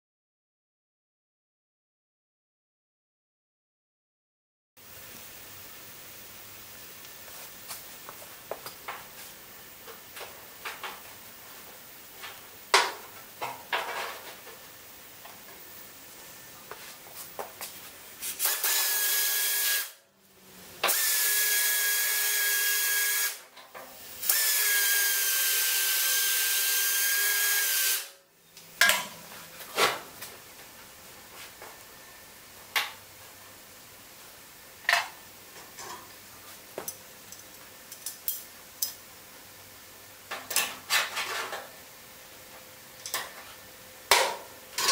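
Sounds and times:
pneumatic drill whine and air hiss: 0:18.3 - 0:20.0, 0:20.8 - 0:23.4, 0:24.0 - 0:28.1.

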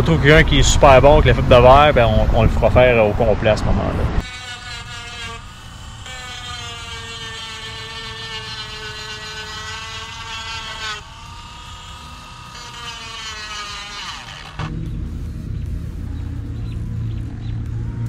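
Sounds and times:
rotary tool motor whine: 0:04.2 - 0:14.7.

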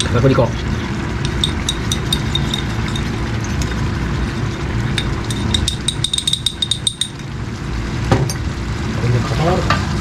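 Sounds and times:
steady low hum: 0:00.0 - 0:10.0
metal spoon clinking against cup: 0:01.2 - 0:03.7, 0:04.9 - 0:07.3.

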